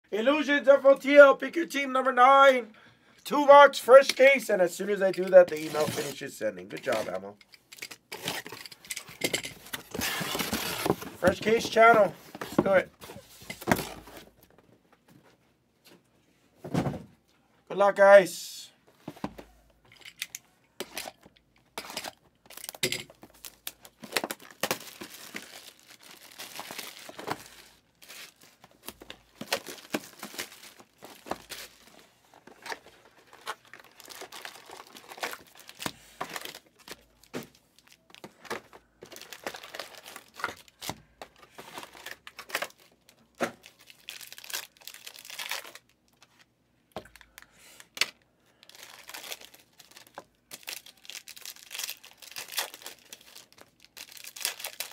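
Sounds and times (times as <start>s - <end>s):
plastic wrapping tearing: 21.8s - 38.2s, 41.8s - 46.2s, 48.6s - 54.9s.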